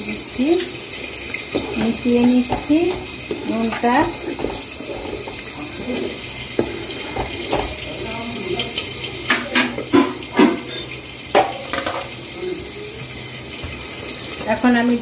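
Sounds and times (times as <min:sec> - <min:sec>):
water boiling and bubbling: 0:00.0 - 0:15.0
spoon clinking against pot: 0:06.6 - 0:12.1.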